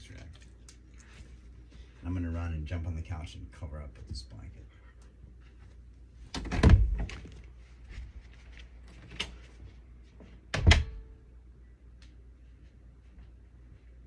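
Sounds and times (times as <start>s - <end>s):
door thudding: 6.4s - 7.2s, 10.5s - 11.0s.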